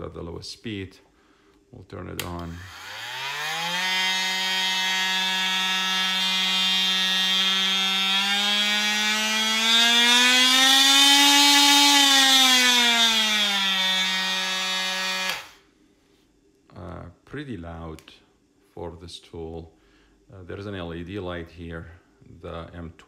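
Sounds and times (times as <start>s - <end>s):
oscillating multi-tool buzzing: 2.4s - 15.6s.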